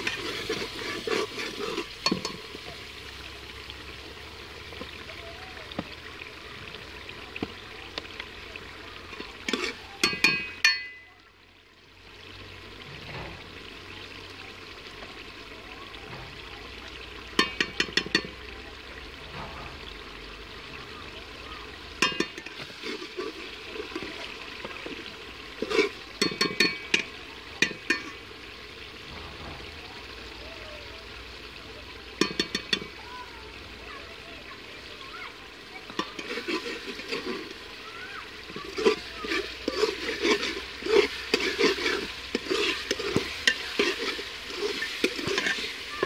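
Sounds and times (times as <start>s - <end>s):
metal clinks of utensils on pot: 0.0s - 2.6s, 9.1s - 11.2s, 17.4s - 18.4s, 22.0s - 24.8s, 25.6s - 28.2s, 32.2s - 32.9s, 35.9s - 37.4s, 38.5s - 46.0s
vegetables sizzling in oil: 0.0s - 11.0s, 16.1s - 46.0s.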